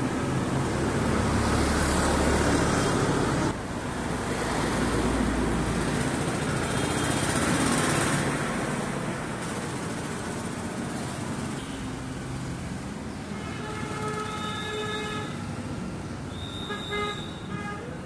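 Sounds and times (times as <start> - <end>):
street traffic: 0.0 - 18.0
vehicle horns honking: 13.3 - 15.5, 16.3 - 18.0.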